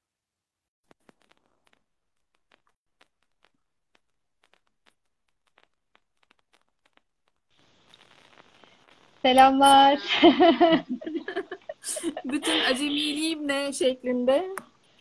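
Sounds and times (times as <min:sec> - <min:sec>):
faint clicks: 0:02.4 - 0:09.5.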